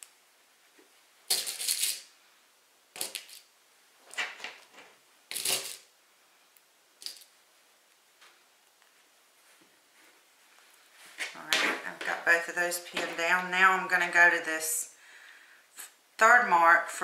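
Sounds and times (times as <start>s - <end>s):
pins clicking: 7.0s - 7.3s
fabric rustling and crinkling: 8.9s - 11.9s.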